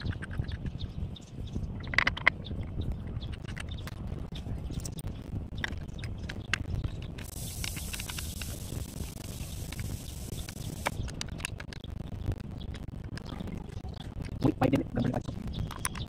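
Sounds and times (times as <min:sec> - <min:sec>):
low steady rumble: 0:00.7 - 0:15.7
hiss: 0:07.2 - 0:11.0.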